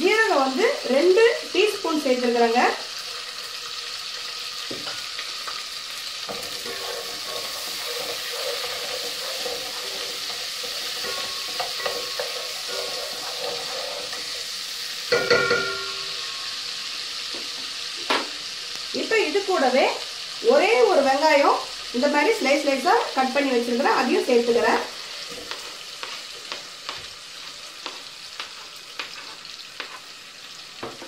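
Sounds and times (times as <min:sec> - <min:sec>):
spices sizzling in hot oil: 0:00.0 - 0:31.0
wooden spatula stirring: 0:06.3 - 0:14.4, 0:24.8 - 0:30.1.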